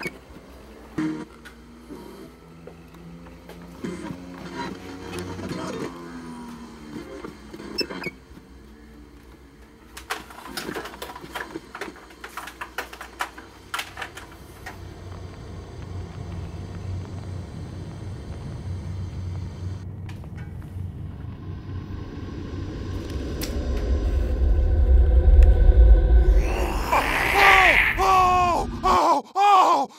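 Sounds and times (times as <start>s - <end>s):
steady low rumble: 14.2s - 29.0s.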